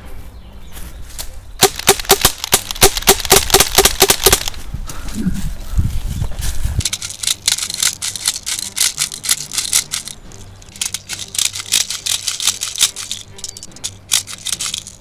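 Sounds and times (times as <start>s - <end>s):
faint background music: 0.0s - 15.0s
pistol handling clicks and rattles: 1.6s - 4.6s, 6.8s - 15.0s.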